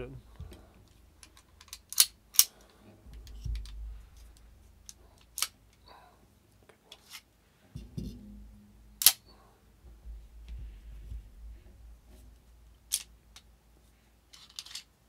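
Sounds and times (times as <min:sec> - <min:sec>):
metallic pistol clicks: 0:01.3 - 0:02.6.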